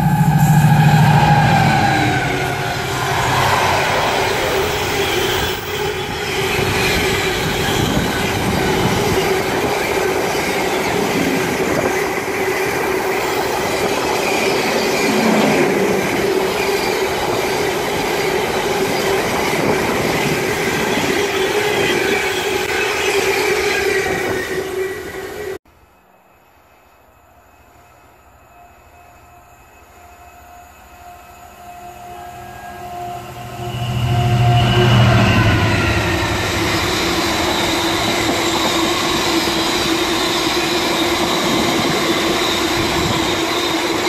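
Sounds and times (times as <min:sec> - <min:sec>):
steady tone: 0:00.0 - 0:05.8
freight train wheels on rail: 0:00.0 - 0:25.6, 0:26.5 - 0:44.0.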